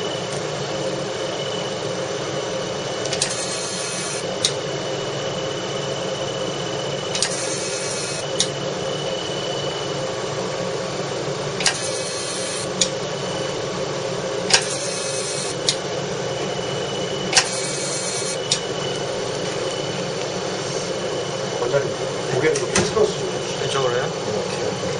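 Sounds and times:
laser unit fan hum: 0.0 - 24.9
laser firing hiss: 7.1 - 8.3, 11.6 - 12.7, 14.5 - 15.6, 17.3 - 18.4
sharp click: 7.2 - 7.4, 8.4 - 8.6.

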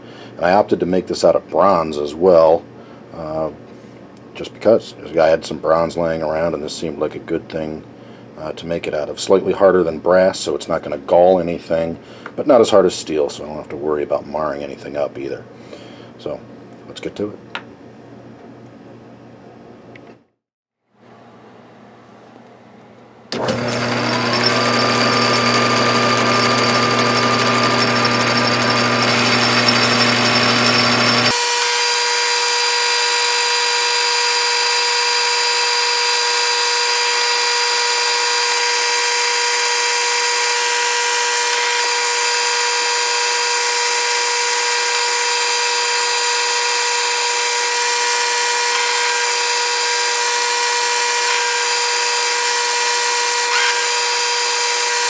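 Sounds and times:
lathe low hum: 21.2 - 55.0
metal lathe whining: 23.3 - 55.0.

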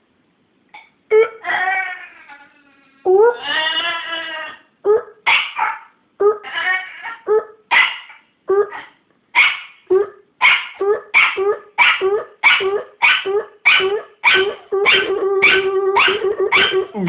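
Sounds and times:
small dog barking: 5.0 - 5.9, 7.4 - 9.8, 10.4 - 17.0.

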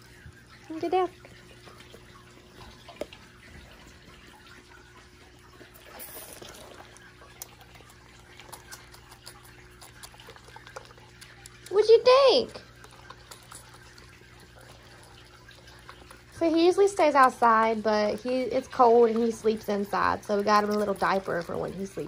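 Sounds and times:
faint steady hum: 0.0 - 22.0
goat kid sucking from bottle: 5.4 - 11.8, 12.6 - 16.4.

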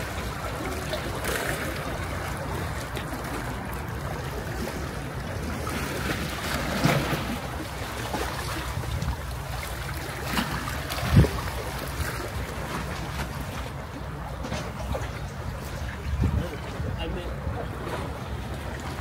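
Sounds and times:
sea waves washing ashore: 0.0 - 19.0
wind on microphone: 8.4 - 9.6, 10.8 - 12.5, 14.9 - 18.1.

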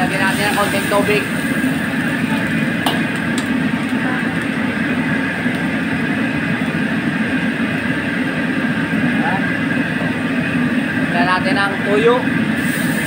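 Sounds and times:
octopus sizzling in wok: 0.0 - 8.6, 12.4 - 13.0
gas burner roaring: 0.0 - 13.0.

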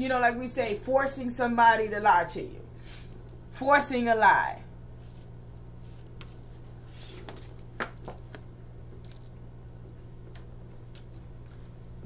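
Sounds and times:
low steady hum: 0.0 - 12.0
cards shuffling: 5.8 - 9.4.

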